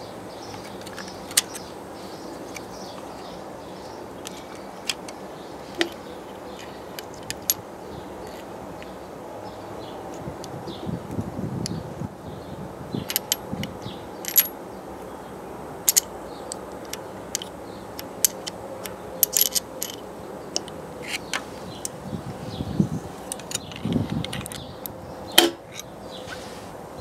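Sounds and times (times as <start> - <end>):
metallic clicks and taps: 15.9 - 22.0.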